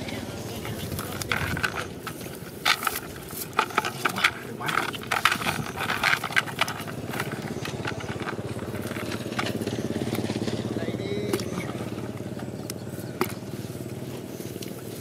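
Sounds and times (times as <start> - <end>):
cast net rustling: 0.5 - 10.7.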